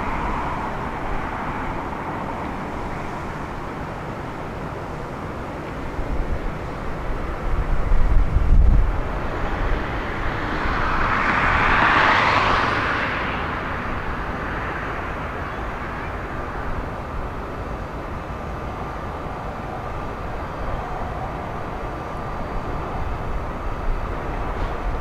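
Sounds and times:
outdoor background noise: 0.0s - 25.0s
vehicle passing: 8.6s - 15.3s.

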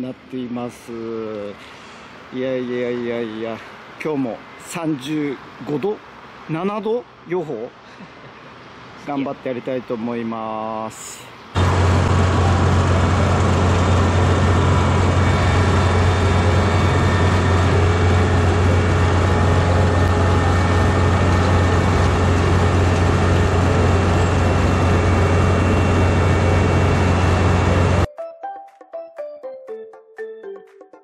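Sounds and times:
combine harvester drone: 11.6s - 28.1s.

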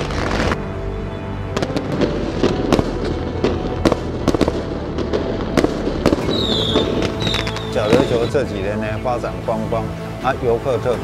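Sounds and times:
firecrackers banging: 0.0s - 0.7s, 1.5s - 8.4s.

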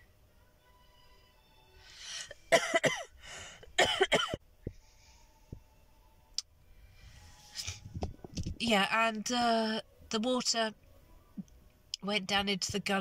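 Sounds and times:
quick in-breath: 1.8s - 2.4s, 3.2s - 3.7s
woman coughing: 2.5s - 3.1s, 3.8s - 4.4s.

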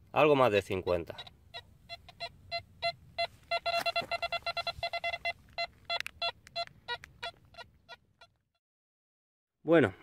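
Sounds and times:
metal detector beeps: 1.9s - 8.0s.

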